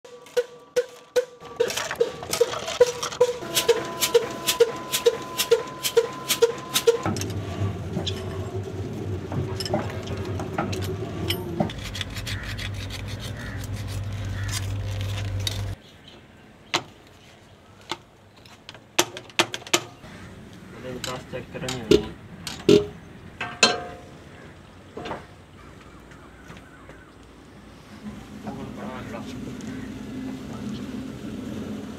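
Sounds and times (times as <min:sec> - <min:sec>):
regular mechanical knocking: 0:00.2 - 0:12.8, 0:20.9 - 0:24.0
hand tools clinking on metal: 0:00.3 - 0:07.4, 0:21.0 - 0:24.0.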